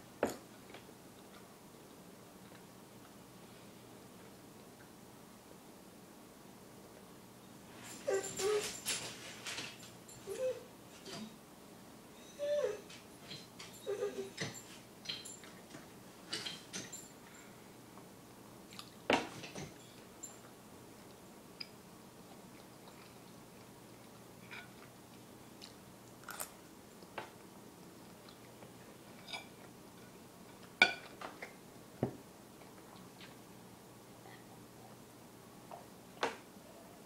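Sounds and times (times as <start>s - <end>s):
person chewing: 21.0s - 27.1s
cutlery clinking on plate: 30.8s - 31.2s.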